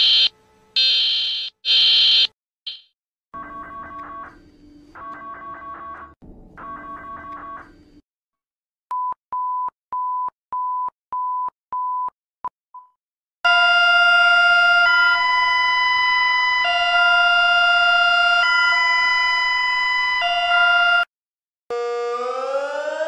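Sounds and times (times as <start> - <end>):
harsh two-chord alarm tone: 0.0 - 2.8, 13.5 - 21.1, 21.7 - 23.0.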